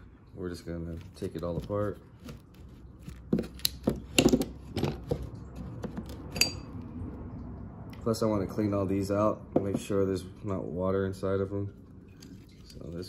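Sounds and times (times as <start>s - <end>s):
metal parts clicking and clinking: 6.0s - 6.8s
ringing metal clink: 6.3s - 6.8s.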